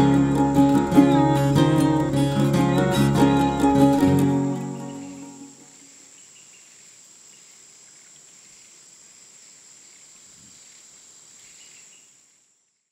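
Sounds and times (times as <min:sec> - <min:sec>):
high-pitched insect drone: 0:00.0 - 0:06.3.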